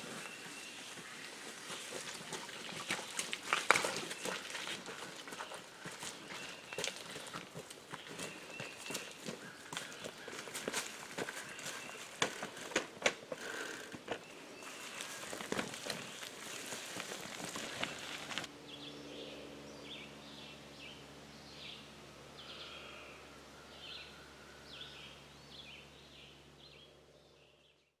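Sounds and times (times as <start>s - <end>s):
footsteps on leafy ground: 0.0s - 18.5s
birds chirping: 0.0s - 28.0s
faint low hum: 0.0s - 28.0s
bicycle trailer rattling: 8.0s - 18.5s.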